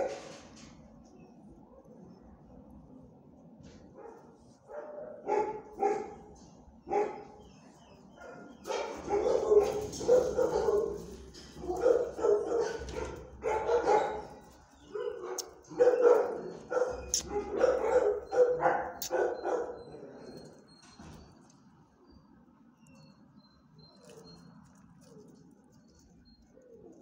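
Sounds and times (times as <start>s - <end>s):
dogs barking: 0.0s - 0.3s, 3.9s - 7.5s, 8.1s - 20.7s.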